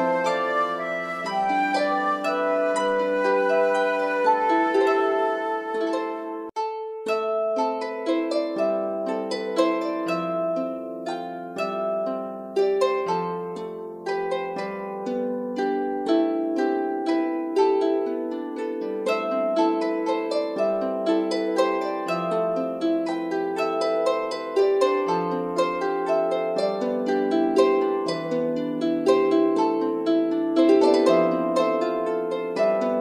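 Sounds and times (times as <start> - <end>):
plucked-string background music: 0.0 - 33.0.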